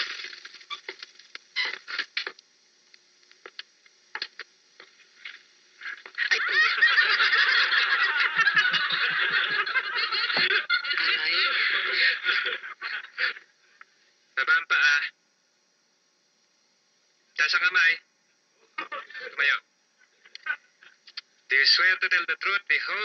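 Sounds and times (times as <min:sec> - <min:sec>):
crowd laughing: 0:06.2 - 0:13.5.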